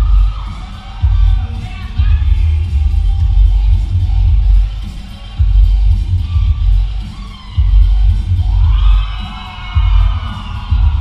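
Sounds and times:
dance music with heavy bass: 0:00.0 - 0:11.0.

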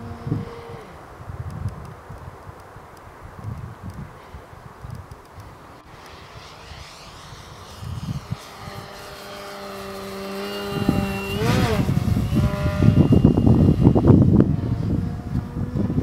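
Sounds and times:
wind rumbling on microphone: 0:00.0 - 0:16.0
electric plane motor whine: 0:05.7 - 0:16.0.

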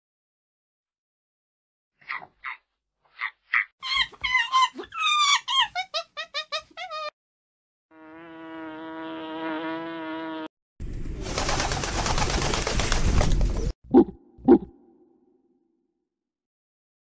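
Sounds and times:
pigeon flock rustling: 0:11.2 - 0:13.7.

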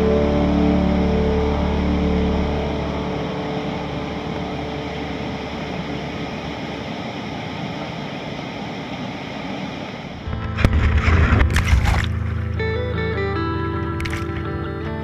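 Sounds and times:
guitar music: 0:00.0 - 0:06.4, 0:10.2 - 0:15.0
whitewater rushing over rocks: 0:02.6 - 0:12.6, 0:14.0 - 0:14.5.

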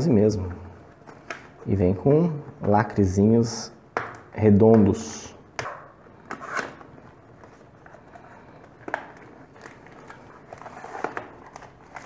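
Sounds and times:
taps and crackles of card: 0:03.9 - 0:05.0.

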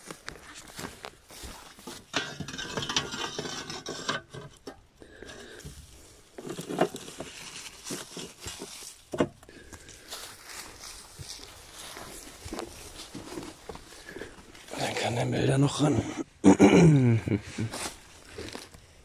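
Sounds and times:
dry grass rustling: 0:00.0 - 0:15.4, 0:17.5 - 0:19.0
sheet metal plates scraping and clinking: 0:01.8 - 0:05.7.

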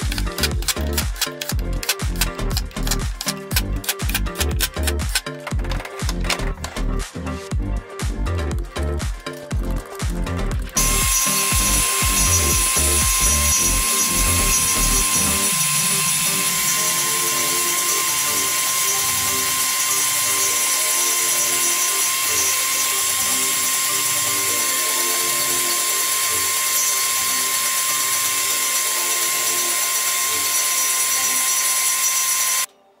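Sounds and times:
background music: 0:00.0 - 0:33.0
table saw running: 0:10.7 - 0:32.7.

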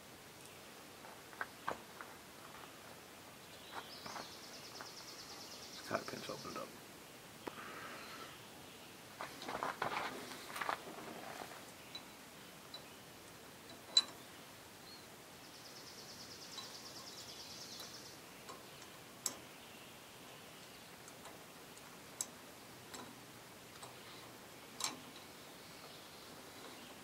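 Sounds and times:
metal tool clicks and taps: 0:13.7 - 0:14.2, 0:18.5 - 0:19.4, 0:21.0 - 0:24.0, 0:24.8 - 0:25.3.

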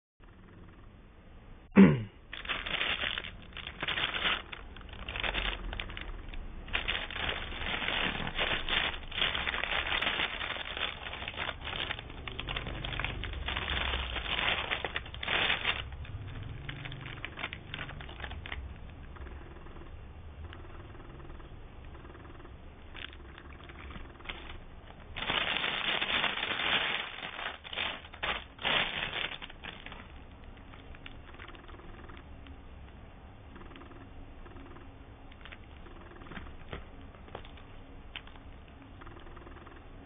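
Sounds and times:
packaging crinkling: 0:02.3 - 0:19.1, 0:22.9 - 0:32.6, 0:35.3 - 0:38.8.

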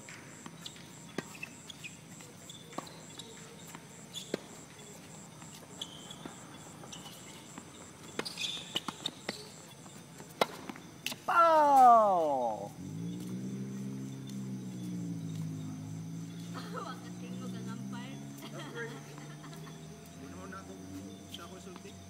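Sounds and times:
balls bouncing on hard court: 0:00.0 - 0:11.9
tennis balls struck by rackets: 0:00.0 - 0:13.3.

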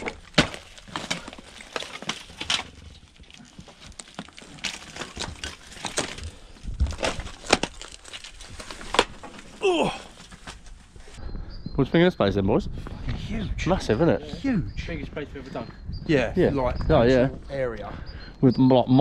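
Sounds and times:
boots crunching through rubble: 0:00.0 - 0:11.2.

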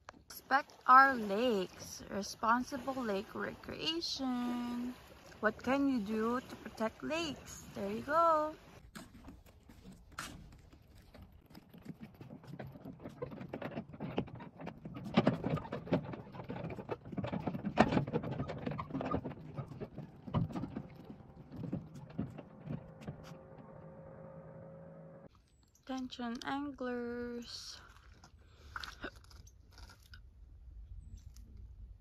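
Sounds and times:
footsteps on wooden dock: 0:08.8 - 0:24.0.

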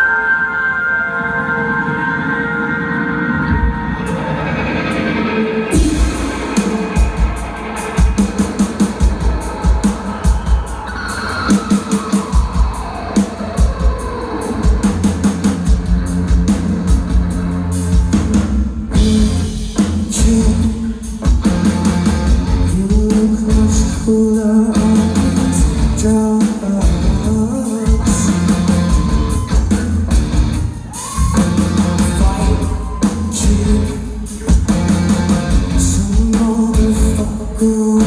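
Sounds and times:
electric guitars: 0:00.0 - 0:38.0
bass guitar: 0:03.4 - 0:38.0
drum kit: 0:03.4 - 0:38.0
person singing: 0:05.7 - 0:15.1, 0:19.0 - 0:21.3, 0:22.4 - 0:30.0, 0:31.0 - 0:38.0.

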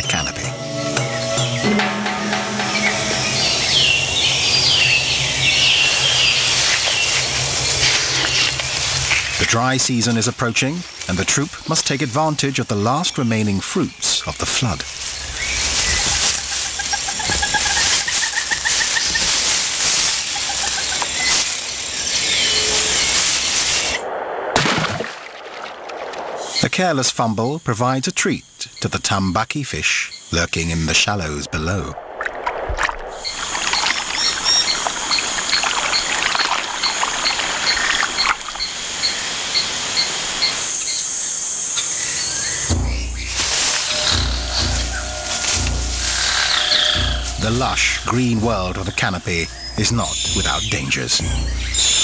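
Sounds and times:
low rumble: 0:00.0 - 0:09.4, 0:42.0 - 0:50.6
bird calls: 0:00.0 - 0:24.0, 0:28.3 - 0:52.0
dense high hiss: 0:00.0 - 0:24.6, 0:25.9 - 0:52.0
rustling of palm fronds: 0:00.2 - 0:24.0, 0:31.3 - 0:52.0
high-pitched insect drone: 0:33.2 - 0:50.6.

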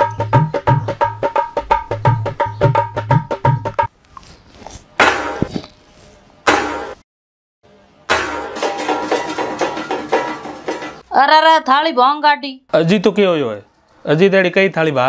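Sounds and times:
tabla-like drum strokes: 0:00.0 - 0:03.9, 0:05.0 - 0:05.7, 0:06.5 - 0:07.0, 0:08.1 - 0:11.0.

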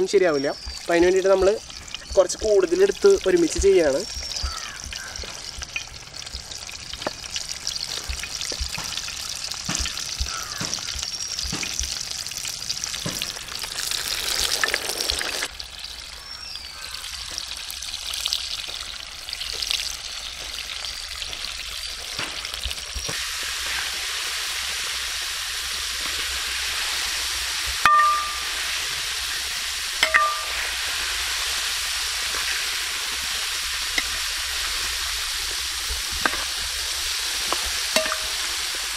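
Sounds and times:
chicken deep-frying sizzle: 0:00.0 - 0:38.9.

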